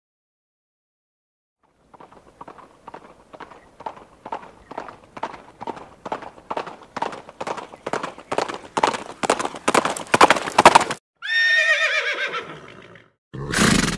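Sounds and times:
horse hooves clip-clopping: 1.6 - 11.0
horse whinnying: 11.2 - 13.9.

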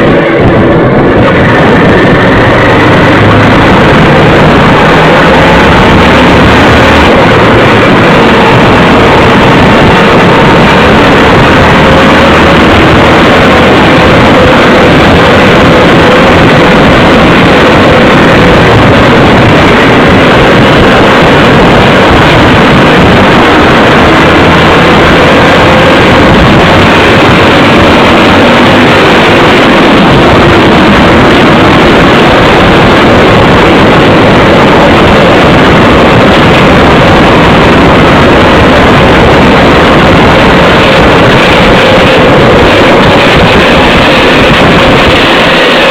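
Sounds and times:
wind rushing over microphone: 0.0 - 45.9.

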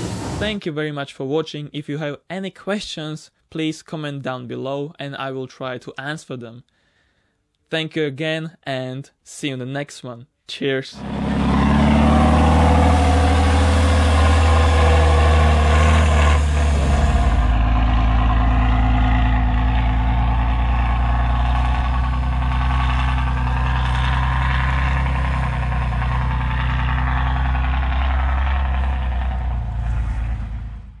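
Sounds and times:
heavy engine running: 0.0 - 0.4, 11.0 - 31.0.

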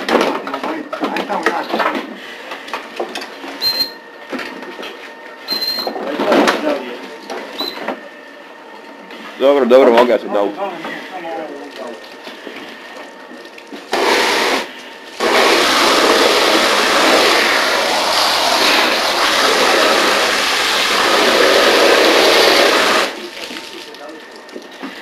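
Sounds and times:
hose nozzle spraying water: 13.9 - 23.9.

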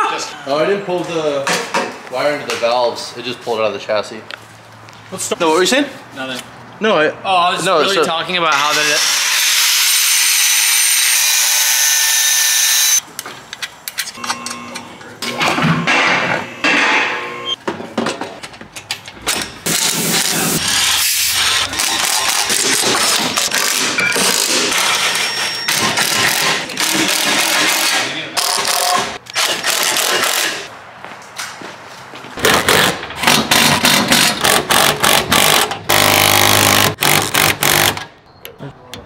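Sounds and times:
impact wrench hammering: 32.4 - 38.1.

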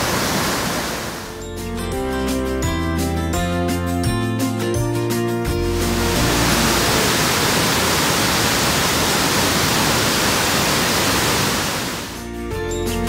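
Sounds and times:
water rushing over rocks: 0.0 - 1.3, 5.7 - 12.2
music: 1.3 - 7.3, 12.1 - 13.0.

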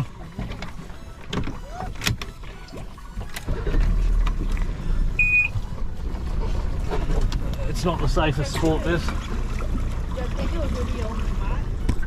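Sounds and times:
boat engine idling: 0.0 - 12.0
water and wind noise: 0.0 - 12.0
short high beep: 5.2 - 5.6.

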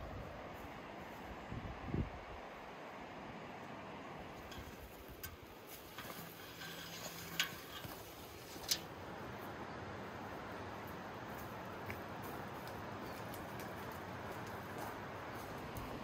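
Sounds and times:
steady outdoor hiss: 0.0 - 16.0
footsteps through undergrowth: 4.6 - 8.7, 10.6 - 16.0.

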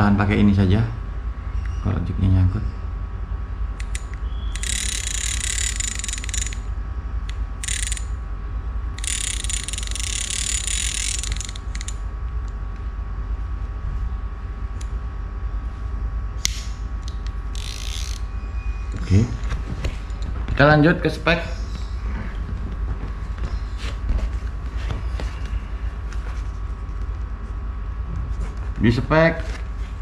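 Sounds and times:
fishing reel whirring and clicking: 3.8 - 6.7, 7.3 - 8.2, 9.0 - 12.0, 17.5 - 18.3.

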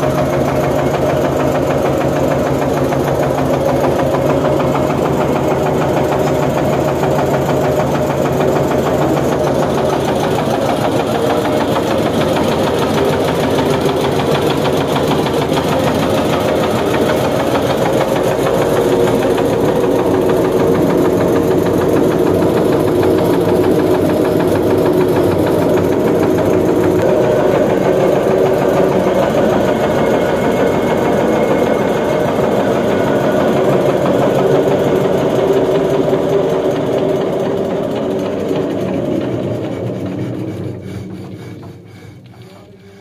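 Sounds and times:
diesel engine running: 0.0 - 43.0.

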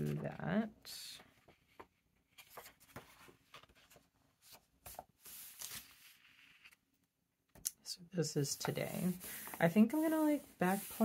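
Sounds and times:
paper pages flipping: 1.2 - 6.8.

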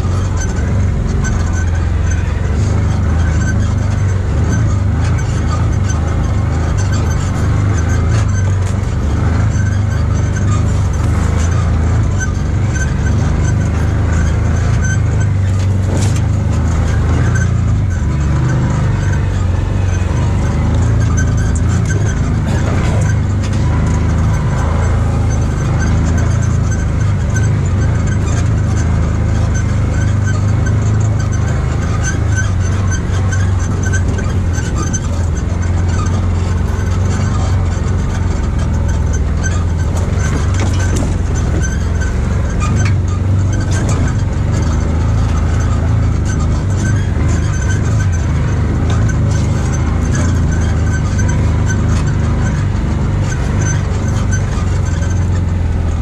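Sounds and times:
vehicle engine drone: 0.0 - 56.0.

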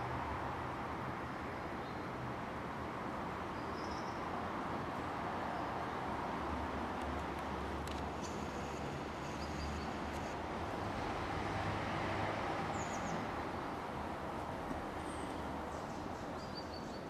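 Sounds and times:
faint bird chirps: 15.0 - 17.0.

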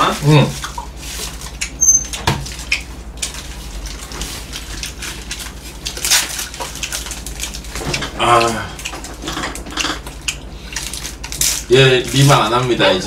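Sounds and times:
low hum: 3.0 - 12.2.

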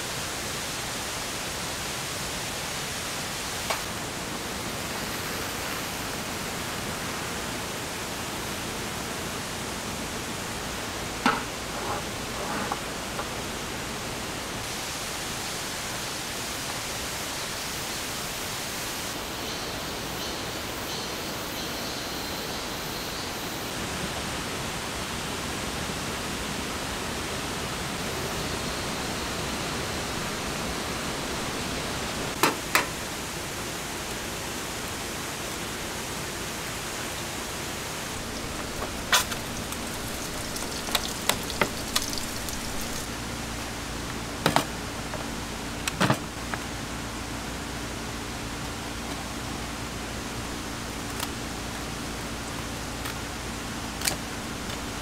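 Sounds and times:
rain falling: 33.0 - 47.3.

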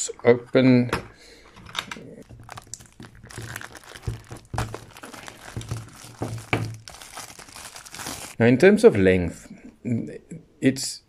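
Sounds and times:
plastic wrapping crinkling: 2.2 - 8.4.

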